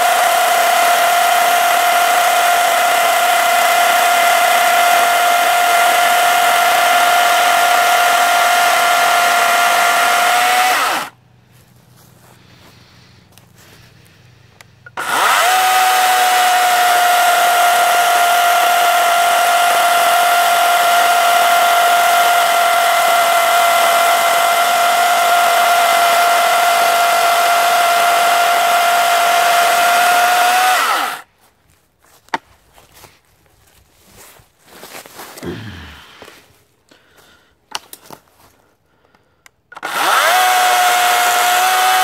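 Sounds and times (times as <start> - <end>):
electric chainsaw cutting a log: 0.0 - 11.2, 14.9 - 31.3, 39.7 - 42.0.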